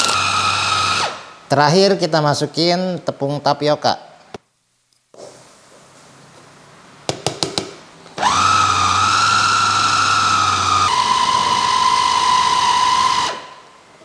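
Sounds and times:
food chopper motor whining: 0:00.0 - 0:01.2, 0:08.2 - 0:13.6.

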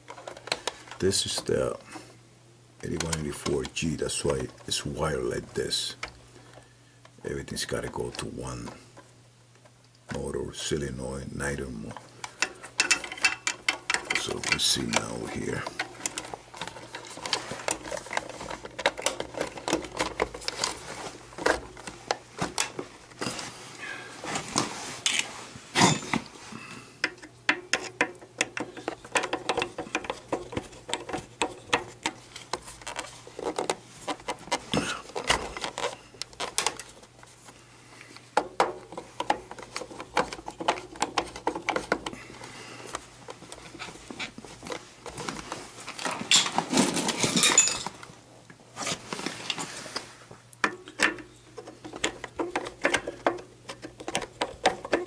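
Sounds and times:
clicking and tapping on plastic: 0:50.6 - 0:55.0.

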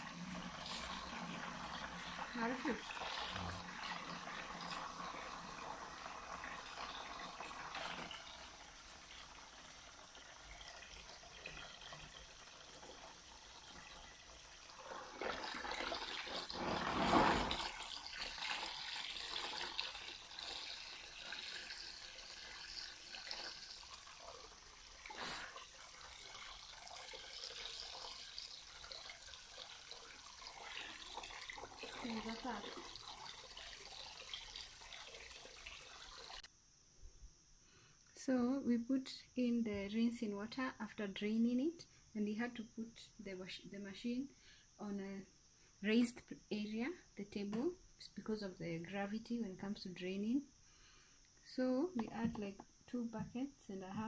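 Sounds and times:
water draining into plastic basin: 0:00.0 - 0:36.5.

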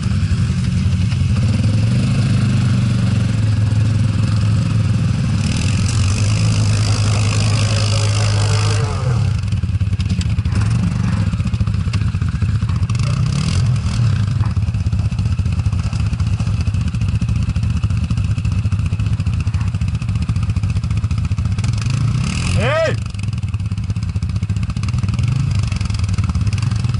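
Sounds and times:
quad bike engine revving: 0:00.0 - 0:26.9.

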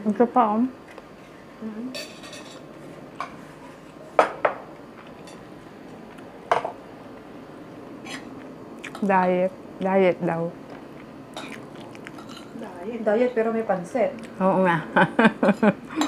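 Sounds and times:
cutlery clinking against plates: 0:02.0 - 0:02.6, 0:11.4 - 0:12.6.

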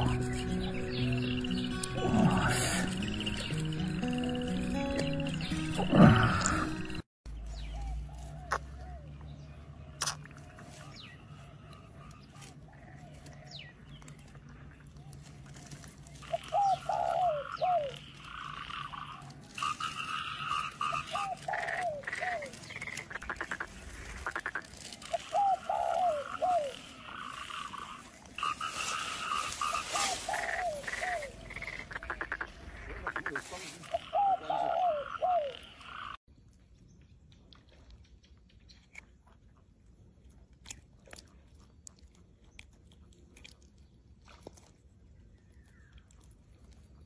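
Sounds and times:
frogs croaking: 0:00.0 - 0:07.0, 0:16.2 - 0:36.2.

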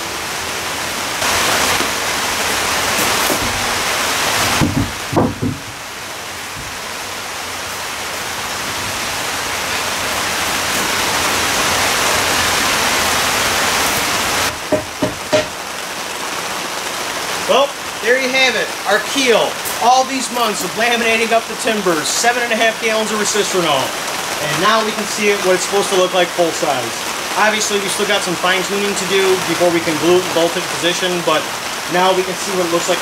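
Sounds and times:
knocks: 0:04.6 - 0:05.8, 0:14.5 - 0:15.6.

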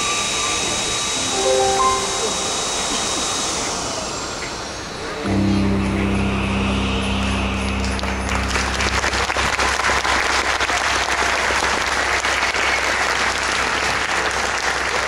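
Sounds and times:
show music held note: 0:01.4 - 0:03.3
audience applauding: 0:07.8 - 0:15.0.

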